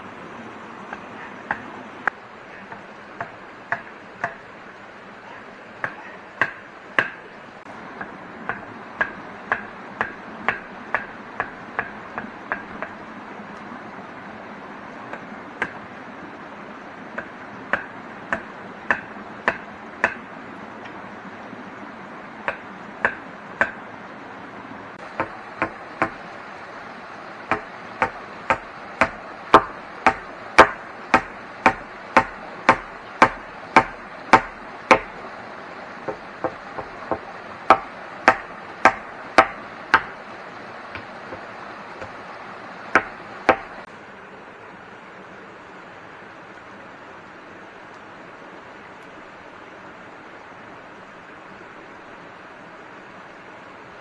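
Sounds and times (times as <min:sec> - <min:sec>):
steady background hiss: 0:00.0 - 0:54.0
blade chopping wood: 0:27.5 - 0:35.2, 0:36.1 - 0:40.2.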